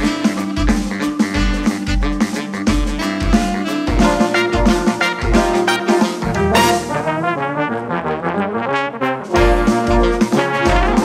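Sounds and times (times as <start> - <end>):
marimba: 0.0 - 7.1, 9.3 - 11.0
drum kit: 0.0 - 11.0
saxophones: 0.0 - 11.0
wind band playing big-band groove: 0.0 - 11.0.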